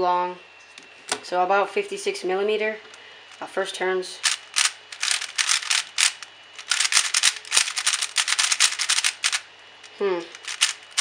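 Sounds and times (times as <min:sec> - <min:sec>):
plastic puzzle cube clicking: 0:04.2 - 0:09.4, 0:10.3 - 0:11.0.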